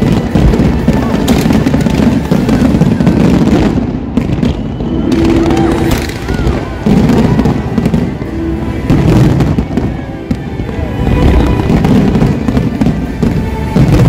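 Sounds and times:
fireworks booming and cracking: 0:00.0 - 0:14.0
show music: 0:00.2 - 0:14.0.

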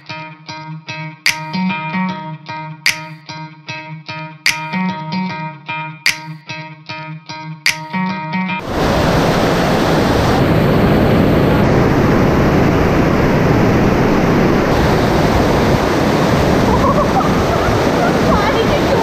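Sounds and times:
waterfall rushing: 0:08.6 - 0:19.0.

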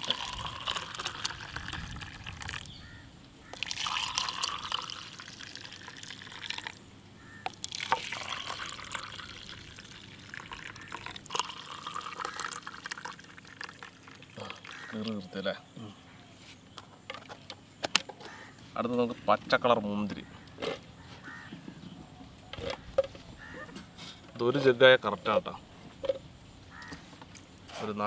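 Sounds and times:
juice pouring into plastic cups: 0:00.0 - 0:02.8, 0:03.5 - 0:06.8, 0:07.4 - 0:15.3.

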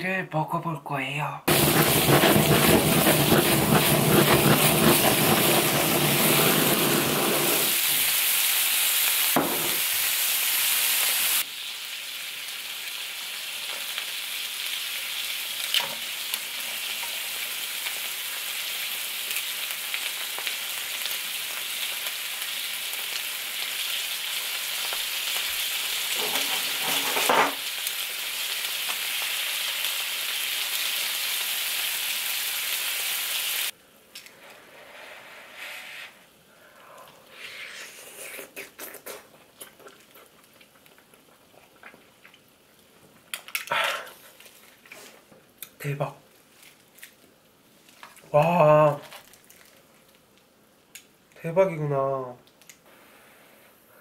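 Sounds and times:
loud full noise: 0:01.5 - 0:07.8
scallops sizzling on a griddle: 0:01.5 - 0:33.8.

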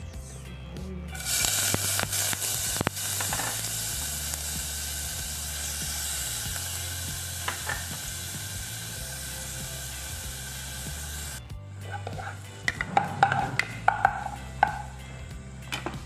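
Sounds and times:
small crackles: 0:01.2 - 0:03.7
onion sizzling in hot oil: 0:01.2 - 0:11.4, 0:12.0 - 0:15.0.

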